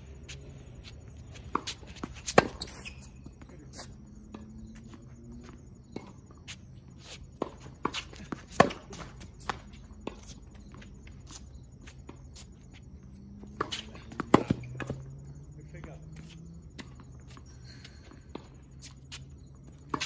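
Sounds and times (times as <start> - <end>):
racket hitting tennis ball: 0.8 - 3.4, 7.3 - 10.3, 13.4 - 15.0
distant ball bounces and hits: 13.4 - 15.1.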